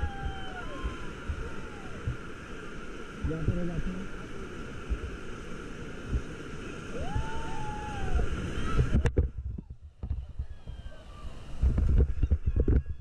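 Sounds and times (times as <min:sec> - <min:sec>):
high arching shout: 0:00.0 - 0:02.0, 0:06.9 - 0:09.0
rushing river water: 0:00.0 - 0:09.4, 0:10.1 - 0:12.8
wind buffeting microphone: 0:06.0 - 0:13.0.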